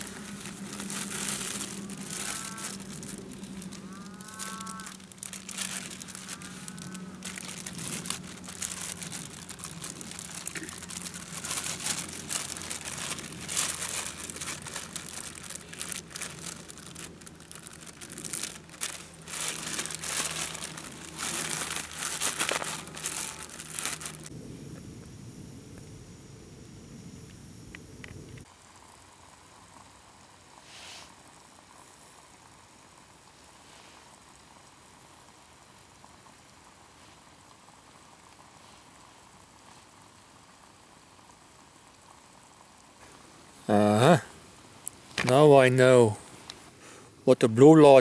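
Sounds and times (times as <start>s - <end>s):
plastic bags crinkling and rustling: 0.0s - 24.3s.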